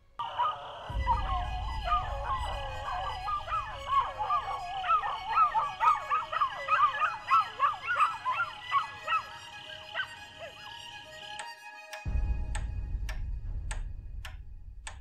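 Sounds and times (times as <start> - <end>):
dogs howling and yelping: 0.2 - 10.9
low rumble: 0.8 - 6.2, 12.1 - 15.0.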